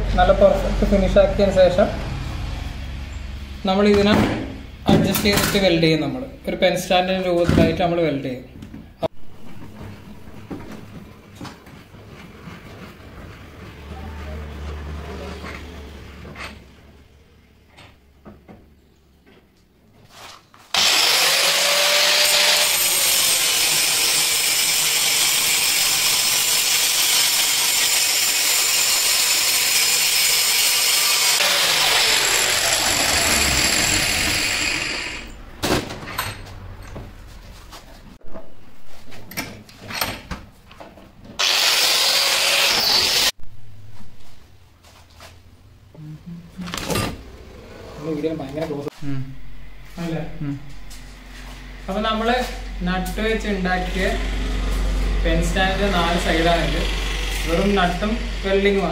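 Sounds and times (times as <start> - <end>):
angle grinder grinding steel: 20.7 - 35.4, 41.4 - 43.4, 51.3 - 58.9.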